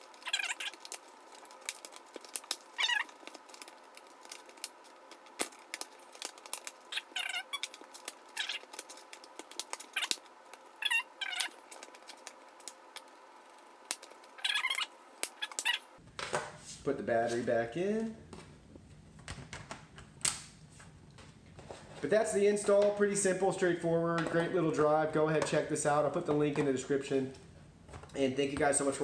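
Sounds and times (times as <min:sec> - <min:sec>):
short high squeaks: 0:06.9 - 0:08.7, 0:14.3 - 0:16.0.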